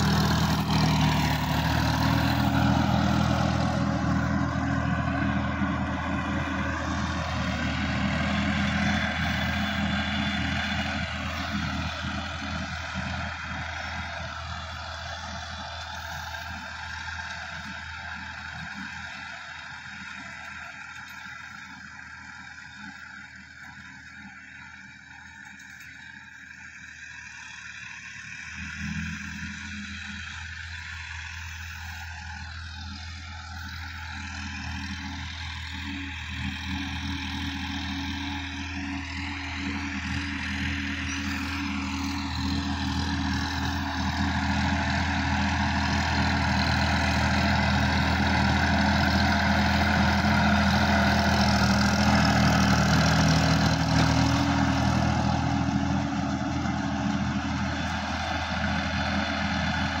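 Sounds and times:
tractor diesel engine under load: 0.0s - 60.0s.

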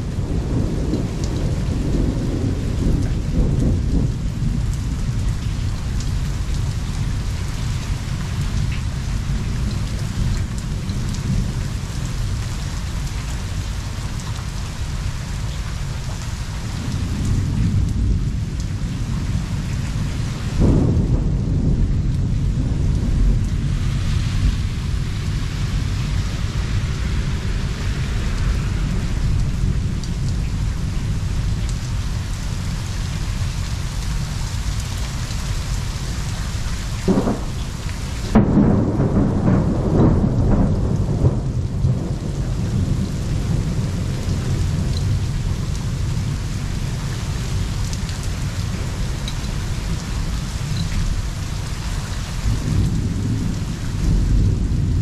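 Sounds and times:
low rumble of thunder: 0.0s - 55.0s
steady rain: 0.0s - 55.0s
sharp peal of thunder: 20.6s - 24.8s, 37.0s - 44.8s.

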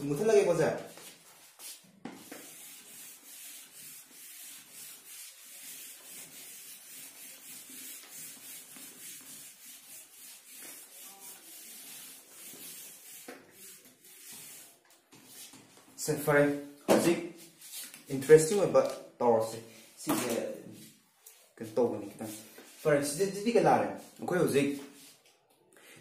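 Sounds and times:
eraser wiping whiteboard: 0.2s - 15.9s, 17.4s - 18.6s, 19.6s - 25.2s.

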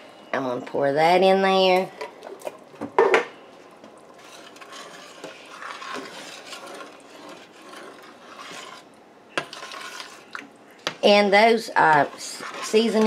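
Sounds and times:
metal spoon scraping a pot: 4.1s - 10.4s, 11.8s - 13.0s.

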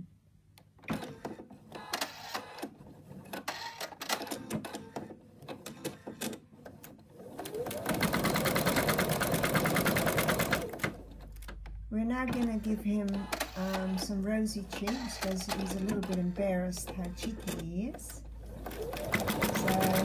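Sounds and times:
embroidery machine stitching: 3.3s - 11.4s, 12.3s - 20.0s.

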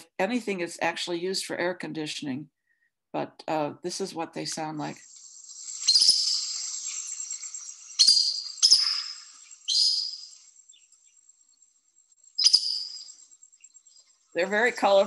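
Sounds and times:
bird squeaky calls: 5.7s - 10.4s, 12.4s - 13.2s.

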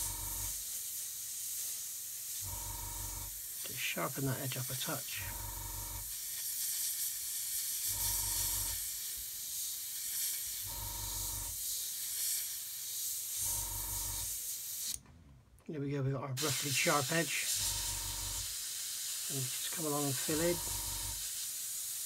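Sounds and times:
airbrush spraying hiss: 0.0s - 15.0s, 16.4s - 22.0s
pulsing low hum: 20.6s - 21.2s.

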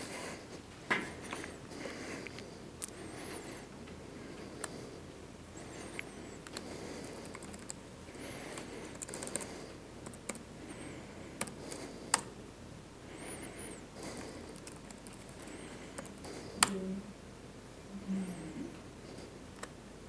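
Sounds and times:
faint room noise: 0.0s - 20.0s
keyboard and mouse clicks: 6.0s - 7.8s, 8.5s - 10.5s, 11.4s - 12.3s, 14.5s - 16.8s.

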